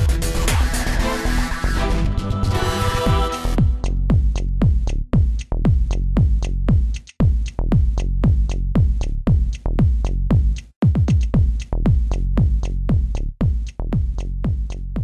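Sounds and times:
electronic dance music: 0.0s - 4.3s
heavy kick drum: 3.1s - 15.0s
ticking hi-hats: 3.2s - 15.0s.

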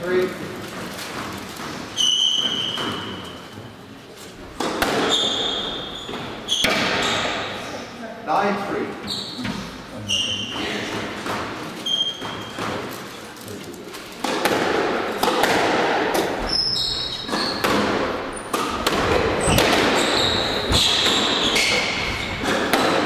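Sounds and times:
shoe squeaks on court floor: 1.8s - 3.6s, 5.0s - 7.5s, 9.0s - 10.8s, 11.8s - 12.8s, 16.4s - 18.7s, 19.4s - 22.5s
squash ball hits: 4.5s - 7.6s, 14.2s - 23.0s.

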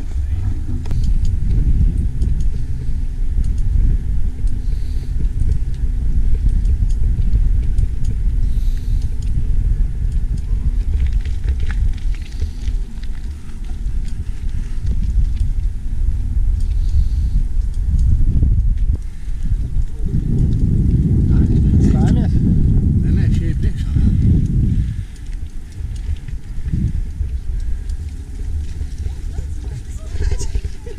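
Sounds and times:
road vibration: 0.0s - 30.9s
wind buffeting microphone: 0.0s - 30.9s.

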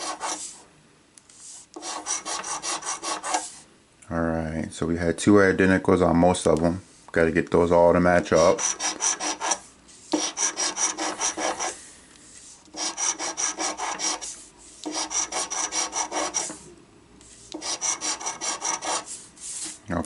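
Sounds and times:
coin scratching lottery ticket: 1.8s - 3.4s, 8.5s - 9.6s, 10.2s - 11.8s, 12.7s - 16.6s, 17.6s - 19.8s.

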